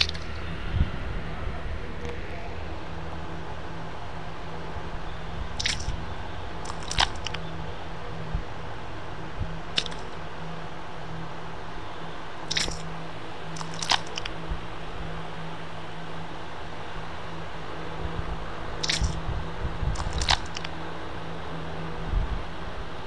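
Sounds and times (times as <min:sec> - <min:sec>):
low hum: 0:00.0 - 0:23.0
crackly squishes: 0:05.6 - 0:06.0, 0:06.6 - 0:07.4, 0:09.8 - 0:10.0, 0:12.5 - 0:12.9, 0:13.6 - 0:14.4, 0:18.8 - 0:19.2, 0:20.0 - 0:20.7.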